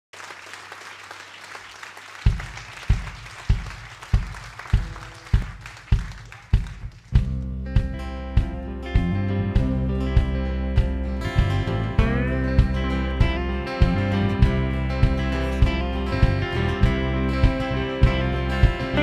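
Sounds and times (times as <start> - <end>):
audience applause: 0.1 - 7.2
live drum beat: 2.2 - 19.0
band with guitars and bass: 2.3 - 19.0.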